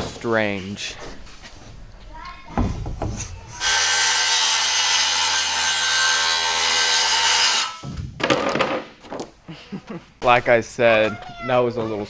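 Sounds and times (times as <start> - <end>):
circular saw cutting plywood: 3.6 - 7.8.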